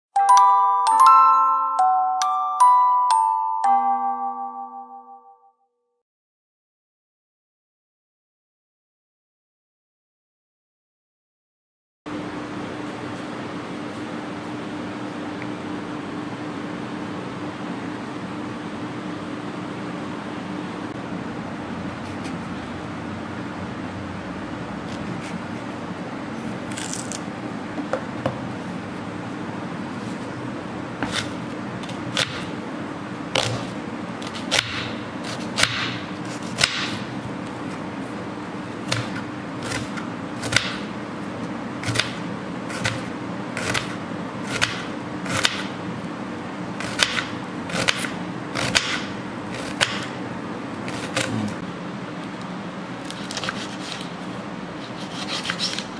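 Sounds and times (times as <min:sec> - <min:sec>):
knife striking cutting board: 0:34.4 - 0:37.0.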